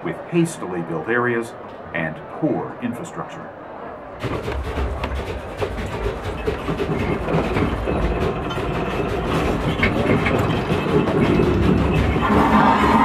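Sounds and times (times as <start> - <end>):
rattling and clattering: 4.2 - 13.0.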